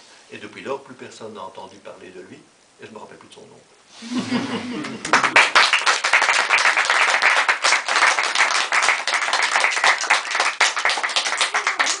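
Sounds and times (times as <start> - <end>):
audience applauding: 4.8 - 12.0.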